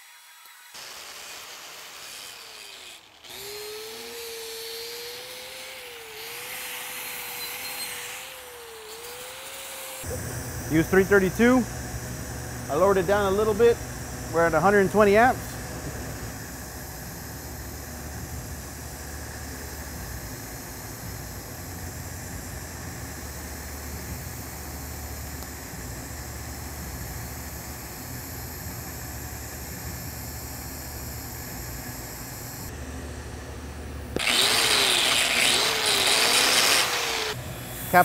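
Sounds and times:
angle grinder whining on metal: 0:00.0 - 0:32.7, 0:34.1 - 0:38.0
welding arc buzzing: 0:00.0 - 0:32.8, 0:33.9 - 0:38.0.

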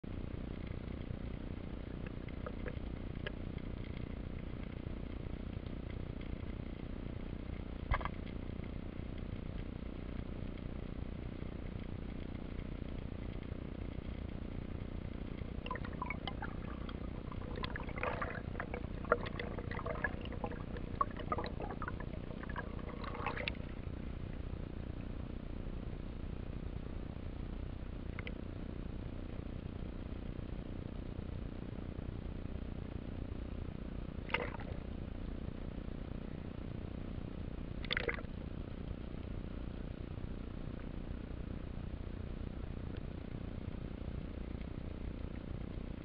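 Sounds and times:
underwater low rumble: 0:00.1 - 0:46.0
air bubbles bubbling and clicking: 0:00.4 - 0:24.6, 0:34.2 - 0:34.9, 0:37.8 - 0:38.5.

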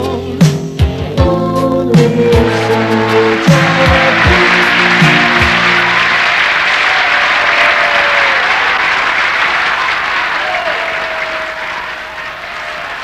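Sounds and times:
concert audience applauding and cheering: 0:02.1 - 0:13.0.

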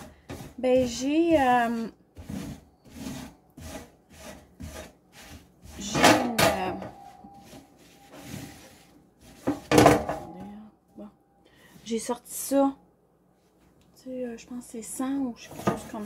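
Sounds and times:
scouring pad scrubbing wire rack: 0:00.0 - 0:10.3
metallic scrapes with ringing: 0:05.8 - 0:08.8.

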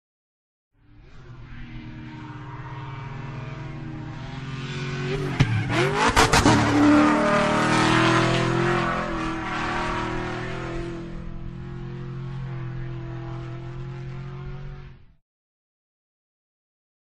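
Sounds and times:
pickup engine revving: 0:01.4 - 0:14.8.

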